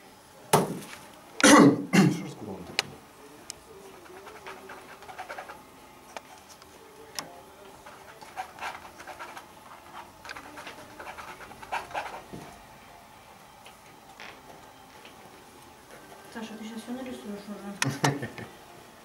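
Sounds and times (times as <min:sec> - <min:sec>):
paintbrush scraping on canvas: 0:03.9 - 0:05.6, 0:07.8 - 0:12.4.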